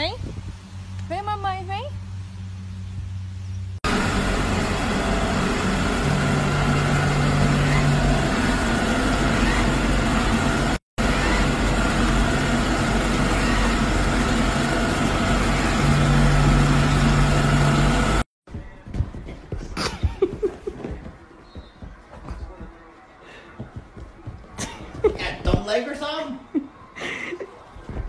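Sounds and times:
low hum: 1.9s - 18.3s
robot vacuum whirring: 3.9s - 18.2s.

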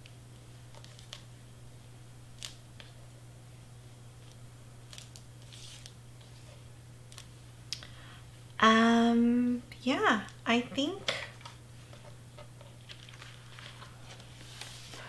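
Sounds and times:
steady low hum: 0.0s - 15.0s
hands handling cardstock: 11.4s - 15.0s.

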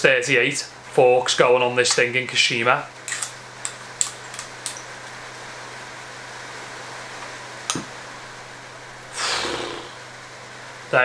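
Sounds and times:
steady hiss: 7.9s - 11.0s.

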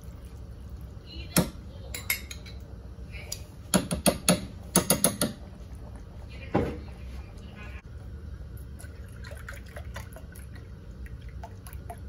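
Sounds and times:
metal spoon knocking on saucepan: 3.7s - 5.4s.

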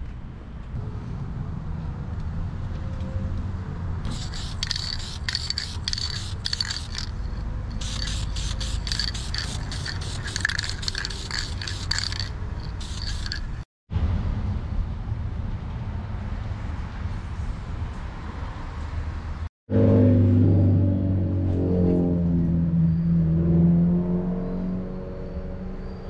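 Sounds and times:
spray paint can hissing: 4.1s - 13.6s.

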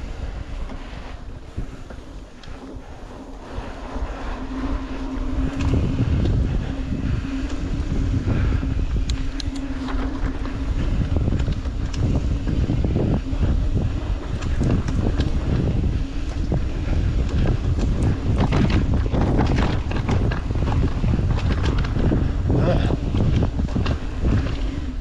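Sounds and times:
bike rattling and clicking: 0.0s - 25.0s
low buzz: 0.0s - 25.0s
wind buffeting microphone: 0.0s - 25.0s.

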